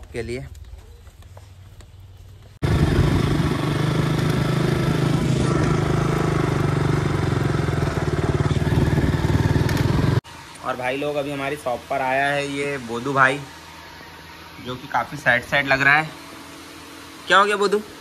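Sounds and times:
motorcycle engine running: 2.2 - 10.4.

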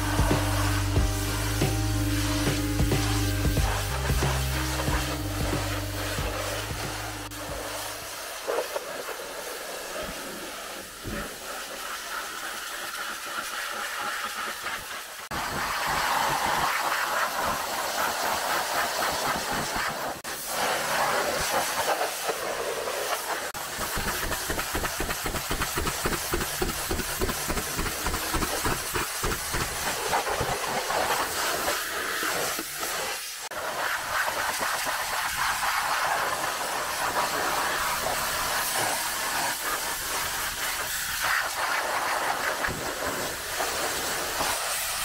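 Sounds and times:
fast low pulsing: 0.0 - 7.9
pressure washer spraying water: 0.0 - 45.0.

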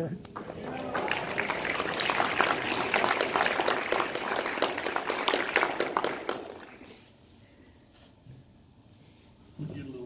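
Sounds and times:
audience applauding: 0.3 - 7.0.

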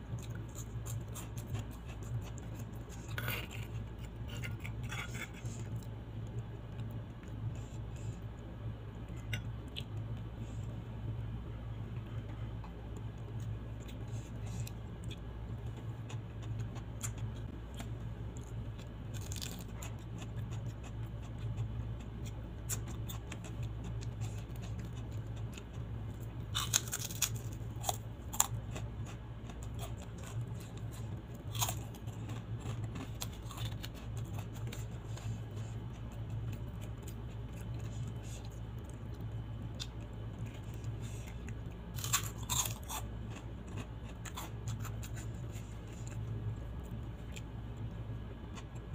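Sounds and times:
steady low hum: 0.0 - 48.9
crackers cracking when bitten: 26.6 - 28.9.

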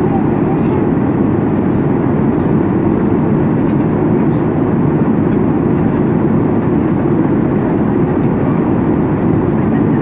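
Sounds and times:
airplane cabin rushing noise: 0.0 - 10.0.

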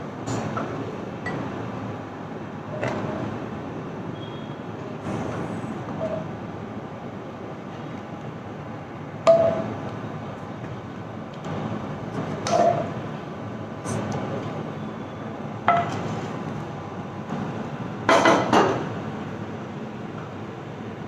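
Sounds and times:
ladle tapping pan and bowl: 15.7 - 16.0.

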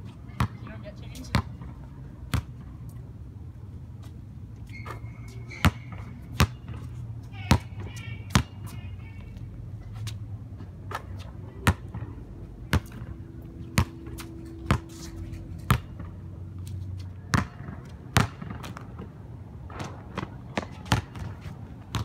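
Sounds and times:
basketball bouncing on hard court: 1.3 - 1.7, 5.5 - 8.8, 12.7 - 13.1, 13.7 - 14.9, 15.6 - 16.2, 17.3 - 19.0, 19.7 - 22.0.

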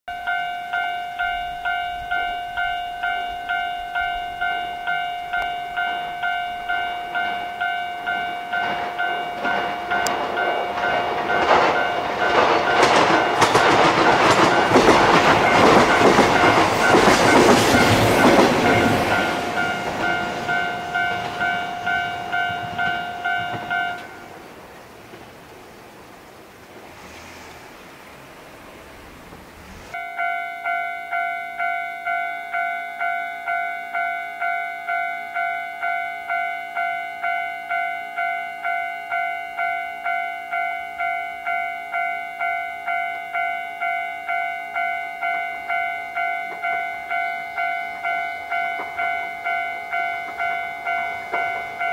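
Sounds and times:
level-crossing bell ringing: 0.1 - 24.4, 30.0 - 51.9
train wheels clattering: 5.4 - 24.4, 45.7 - 51.9.

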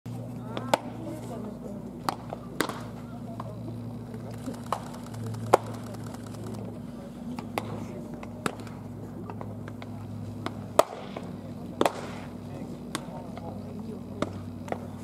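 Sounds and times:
steady low hum: 0.1 - 15.0
baseballs smacking into gloves: 2.0 - 3.5, 10.4 - 12.2.

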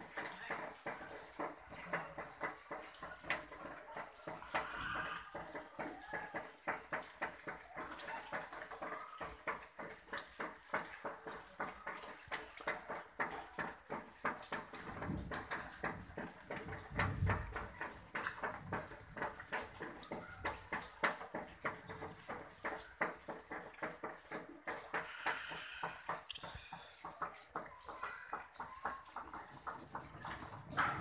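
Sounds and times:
hailstones striking the ground: 0.0 - 31.0
steady wash like running water: 0.0 - 31.0.

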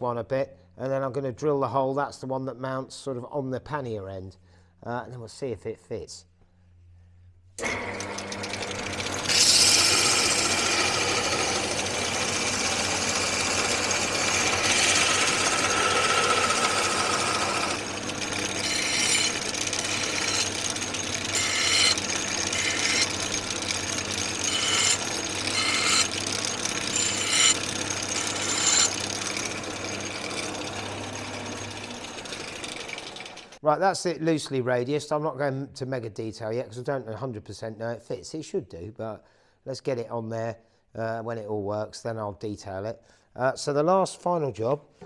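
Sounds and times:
belt sander motor humming: 7.6 - 33.6
metal grinding on sanding belt: 8.3 - 33.6.

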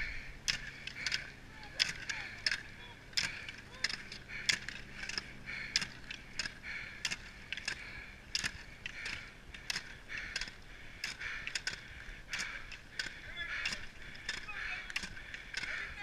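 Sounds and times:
ski poles clicking on asphalt: 0.0 - 16.0.

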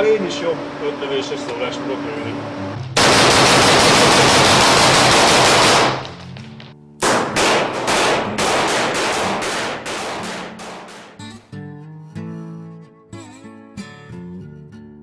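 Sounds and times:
rifle shots: 3.0 - 6.3, 7.0 - 11.2
music playing: 10.2 - 15.0.

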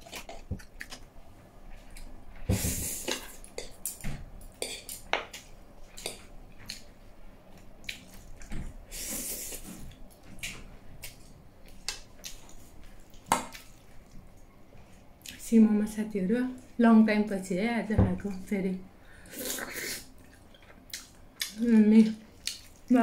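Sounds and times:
wet chewing and lip-smacking: 19.4 - 22.9.

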